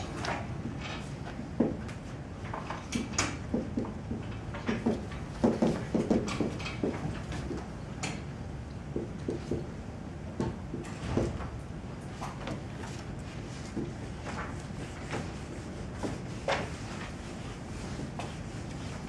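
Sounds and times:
marker writing on whiteboard: 2.9 - 7.6, 8.9 - 9.8, 12.2 - 19.0.

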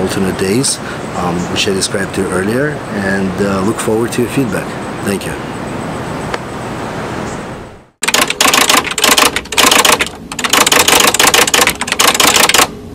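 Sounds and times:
outdoor background hum: 0.0 - 12.9
typewriter keystrokes: 8.0 - 12.7.

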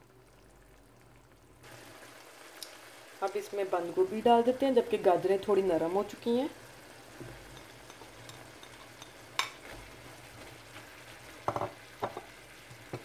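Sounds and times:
food sizzling in a wok: 1.6 - 13.0
spatula stirring: 7.1 - 13.0.

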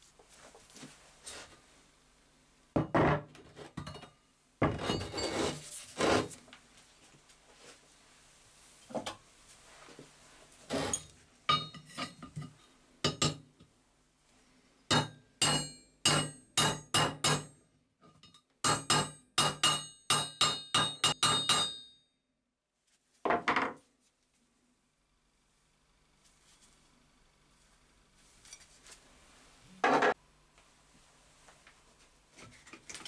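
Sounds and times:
hammer tapping on metal: 14.9 - 17.6, 18.6 - 21.9.

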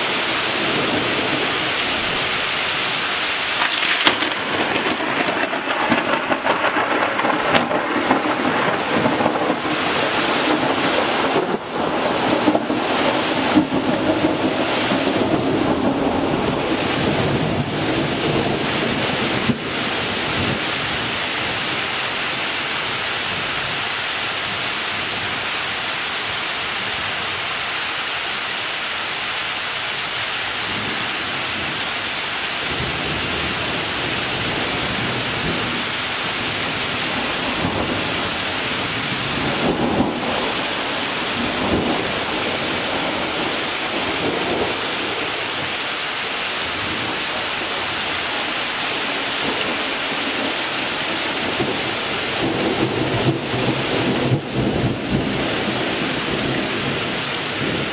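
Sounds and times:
steady rain: 0.0 - 57.9
thunder rumbling: 3.6 - 21.8, 32.7 - 45.7, 46.7 - 57.9.

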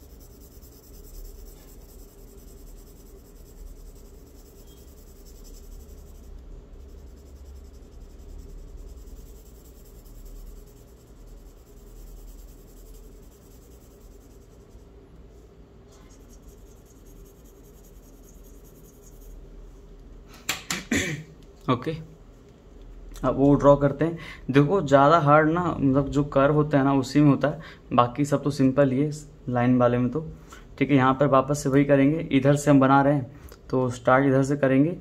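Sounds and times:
charcoal pencil scratching paper: 0.0 - 19.4
low steady hum: 0.0 - 35.0.

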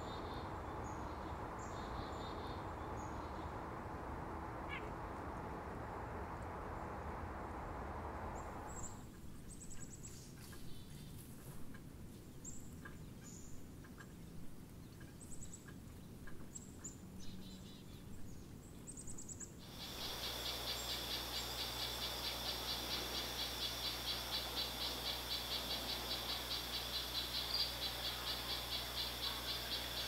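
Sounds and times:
wild bird chirps: 0.0 - 5.6, 19.6 - 30.0
pulsing insect trill: 19.6 - 30.0.

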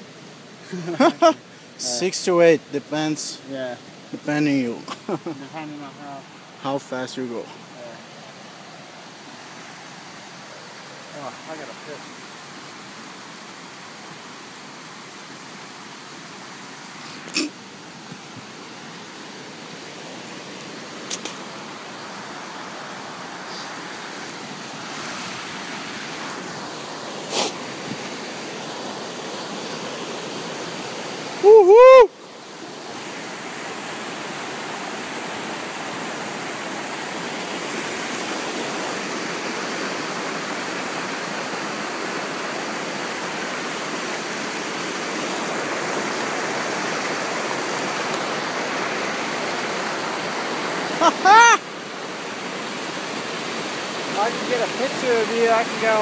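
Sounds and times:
rushing river water: 0.0 - 56.0
person shouting woo-hoo: 31.4 - 32.2, 51.0 - 51.6.

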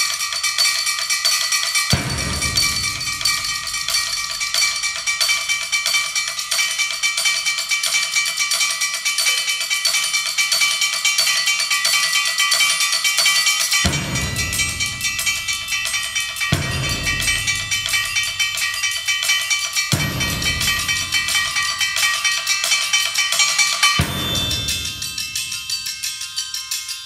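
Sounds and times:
fast repeated percussion strikes: 0.0 - 27.0
low percussion strokes: 2.0 - 5.9, 13.8 - 23.2.

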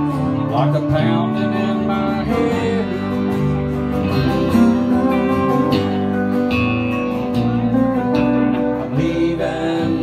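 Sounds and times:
electric guitar: 0.0 - 10.0
pedal steel guitar: 0.0 - 10.0
strummed acoustic guitar: 0.0 - 10.0.

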